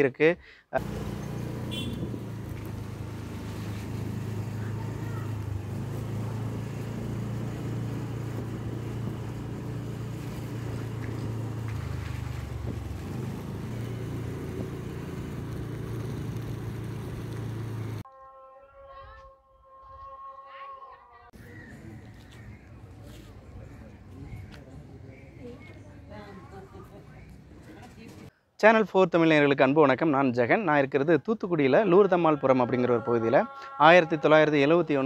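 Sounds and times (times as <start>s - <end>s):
road and wind noise: 0.8s - 18.0s, 21.4s - 28.3s
vehicle engine running: 0.8s - 18.0s.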